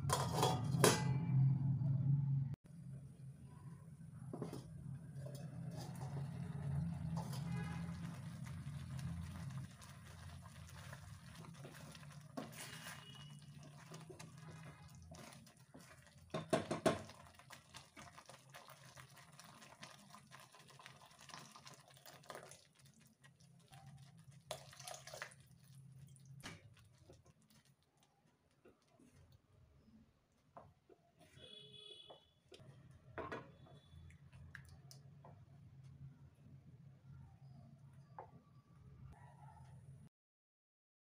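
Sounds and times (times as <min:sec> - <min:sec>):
metal clatter: 0:00.0 - 0:01.5
curry bubbling and popping: 0:04.3 - 0:31.6, 0:33.3 - 0:35.5.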